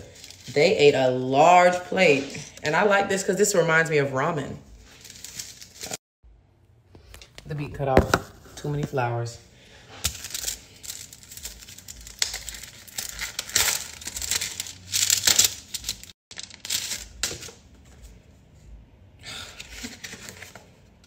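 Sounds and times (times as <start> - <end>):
paper rustling and tearing: 4.8 - 6.0, 9.9 - 18.1, 19.6 - 20.8.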